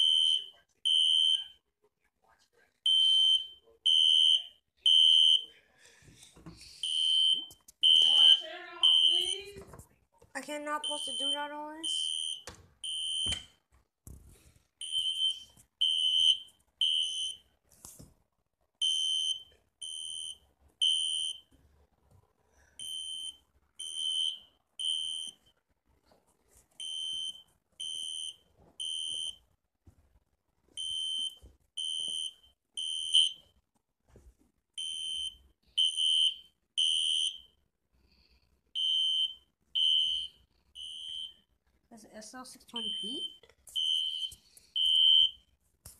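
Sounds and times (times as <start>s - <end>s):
fire alarm beeping: 0.0s - 1.6s, 2.9s - 5.5s, 6.8s - 9.5s, 10.8s - 13.5s, 14.8s - 17.5s, 18.8s - 21.5s, 22.8s - 25.5s, 26.8s - 29.4s, 30.8s - 33.4s, 34.8s - 37.5s, 38.8s - 41.4s, 42.8s - 45.4s.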